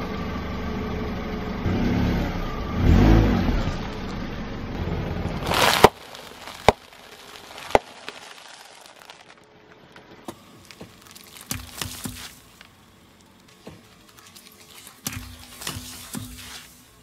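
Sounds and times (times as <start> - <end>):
juice pouch bursting with splatter: 5.4 - 9.4, 10.6 - 12.6
packets popping: 5.4 - 9.4, 10.3 - 12.8, 13.5 - 16.8
tyre crunching food packets: 5.4 - 9.5, 10.3 - 17.0.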